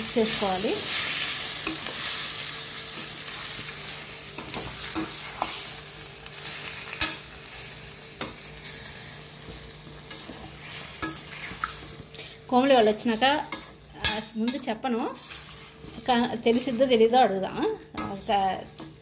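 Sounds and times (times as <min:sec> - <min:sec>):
chicken sizzling in hot oil: 0:00.0 - 0:19.0
metal spoon scraping steel pan: 0:12.8 - 0:17.0.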